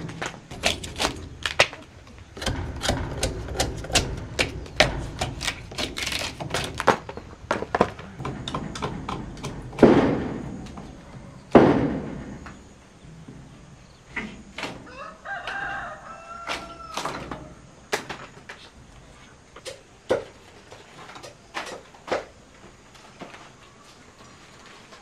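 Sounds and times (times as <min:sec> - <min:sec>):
heavy thuds: 0:00.0 - 0:14.4.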